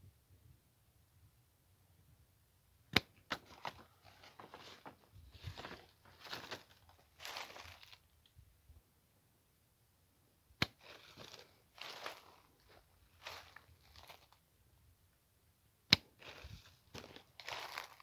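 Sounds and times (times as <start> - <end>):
rustling of twigs and leaves: 3.3 - 8.3, 10.7 - 14.4, 16.2 - 18.0.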